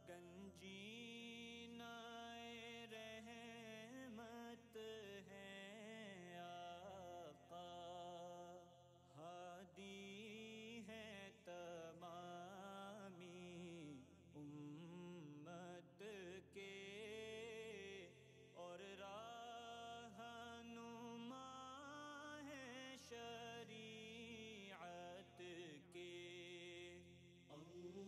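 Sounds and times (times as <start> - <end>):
person chanting a slow melody: 0.0 - 28.0.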